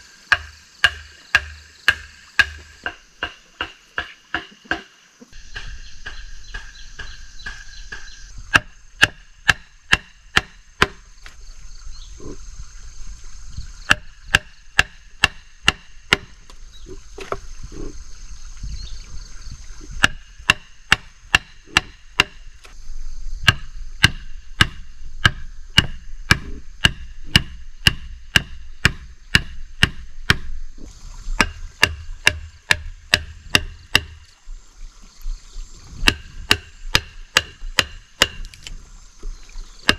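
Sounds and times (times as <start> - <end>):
hatchet chopping into log: 0.3 - 4.9, 5.5 - 11.0, 13.9 - 16.5, 20.0 - 22.8, 23.4 - 30.5, 31.4 - 34.3, 36.0 - 38.8.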